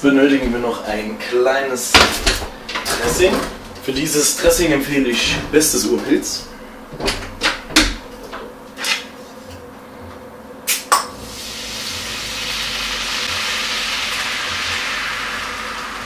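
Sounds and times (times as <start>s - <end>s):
beer sizzling in hot pan: 11.2s - 16.0s.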